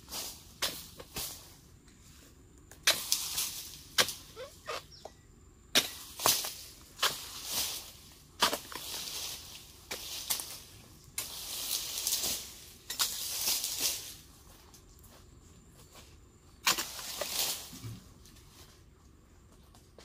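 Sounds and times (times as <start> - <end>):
dry rustling of palm leaves: 0.0 - 5.0, 5.8 - 20.0
chisel chopping palm fronds: 0.2 - 1.5, 2.7 - 4.8, 5.7 - 14.2, 16.6 - 17.8.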